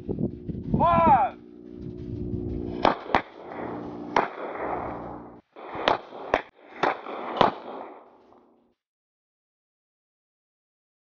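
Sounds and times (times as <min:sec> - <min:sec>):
pistol shots: 0:02.7 - 0:08.4.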